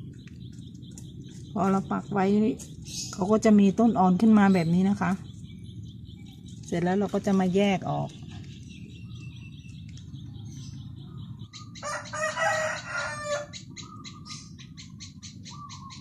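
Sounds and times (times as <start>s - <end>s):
rooster crowing: 11.8s - 13.6s.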